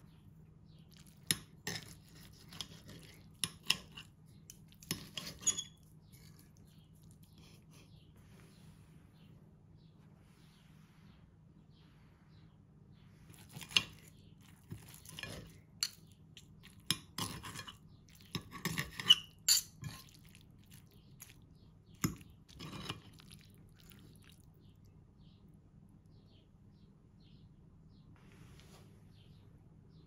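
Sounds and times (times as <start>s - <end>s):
utensils clinking on dishware: 4.8s - 5.8s, 14.7s - 20.2s.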